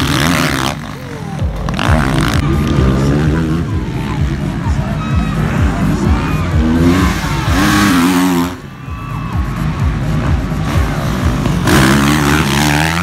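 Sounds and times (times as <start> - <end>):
motorbike engines revving hard: 0.0 - 13.0
music with steady beat: 0.0 - 13.0.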